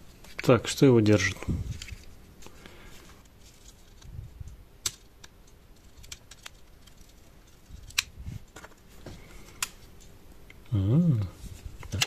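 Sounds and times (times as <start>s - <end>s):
plastic parts clicking: 4.8s - 7.2s.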